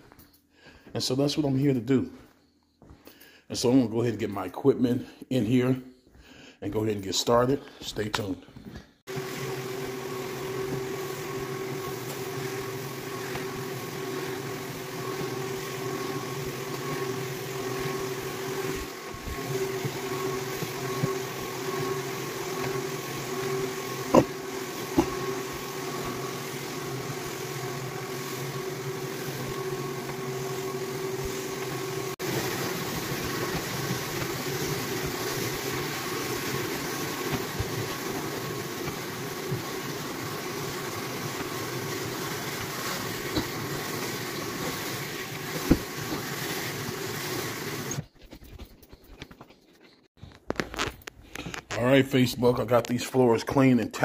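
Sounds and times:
floor buffer grinding: 0:09.1 - 0:48.0.

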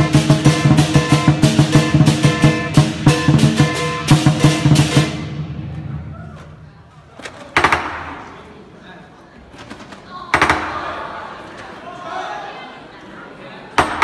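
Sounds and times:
drum cymbals and gong: 0:00.0 - 0:06.2.

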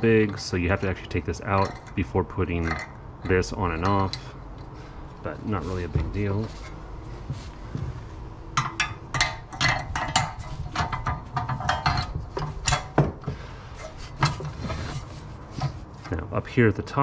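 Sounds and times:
metal spring clinking and clattering: 0:00.0 - 0:04.8, 0:08.6 - 0:16.2.

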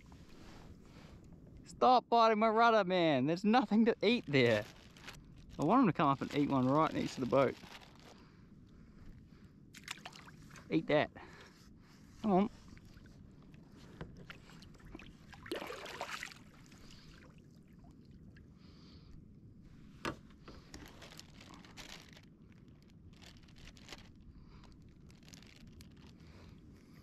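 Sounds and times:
water lapping around kayak: 0:09.7 - 0:10.7, 0:11.4 - 0:19.0
paddle splash: 0:14.0 - 0:17.4.

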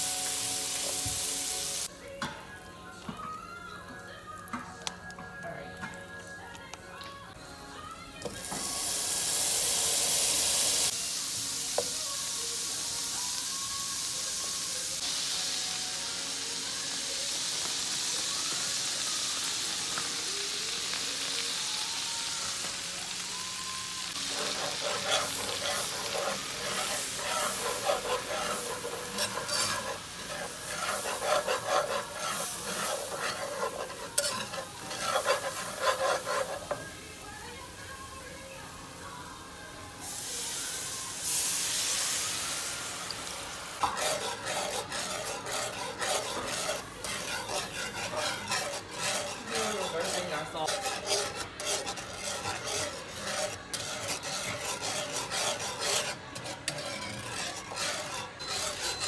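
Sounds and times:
butter sizzling in a skillet: 0:00.0 - 0:05.0, 0:05.6 - 0:59.0
whisk scraping and clicking in a pan: 0:24.1 - 0:36.9, 0:41.2 - 0:59.0.

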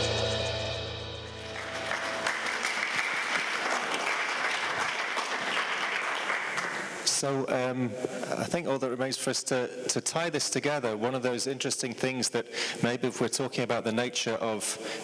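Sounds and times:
audience applauding: 0:01.3 - 0:07.1.

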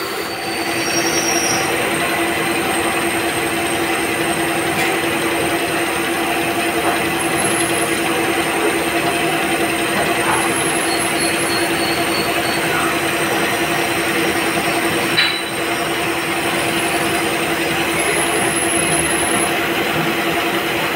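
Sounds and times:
drill squealing: 0:00.0 - 0:03.0, 0:07.1 - 0:08.5, 0:09.4 - 0:19.6
machine hum with high whine: 0:00.0 - 0:20.9.

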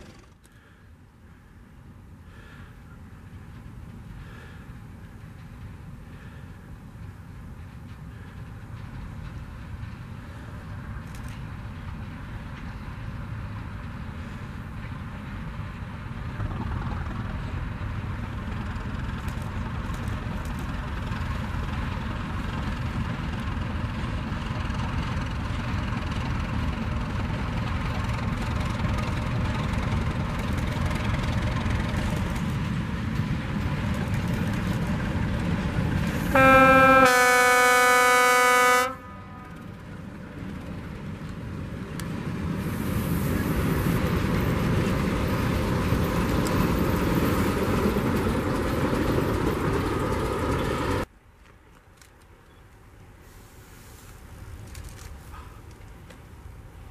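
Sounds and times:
locomotive engine rumble: 0:00.0 - 0:56.9
train horn blast: 0:36.2 - 0:39.7.

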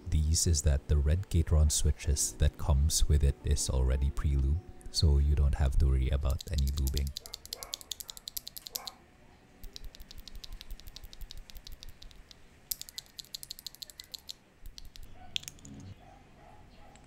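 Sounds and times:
keyboard switches clacking: 0:06.2 - 0:09.0, 0:09.6 - 0:16.0.

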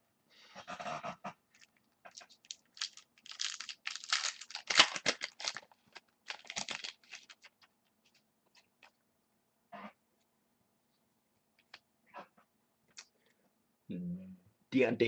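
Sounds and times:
foil wrappers crinkling: 0:01.6 - 0:08.9.

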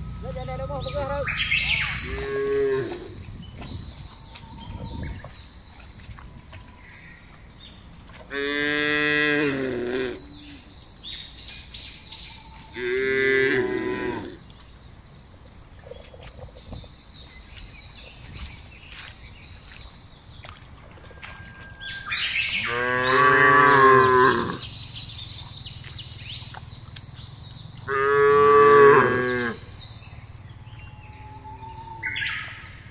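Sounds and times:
cattle mooing: 0:00.3 - 0:03.2, 0:08.3 - 0:10.6, 0:12.8 - 0:14.4, 0:22.6 - 0:24.6, 0:27.9 - 0:29.7.

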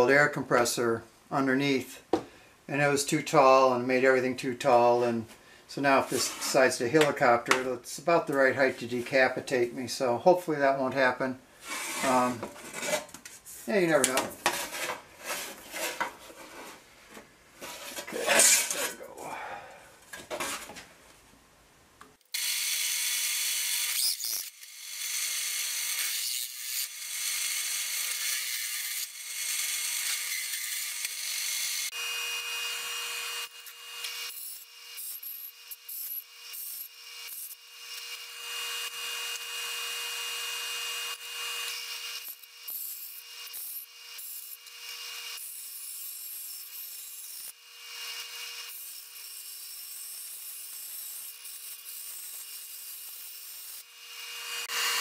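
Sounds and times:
bandsaw humming: 0:22.4 - 0:55.0
hole saw grinding through metal: 0:22.4 - 0:55.0.

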